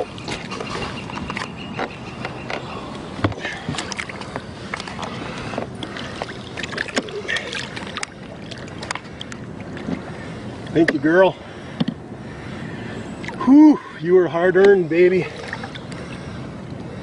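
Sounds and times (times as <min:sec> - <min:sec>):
water splashing against a boat: 0:00.0 - 0:17.0.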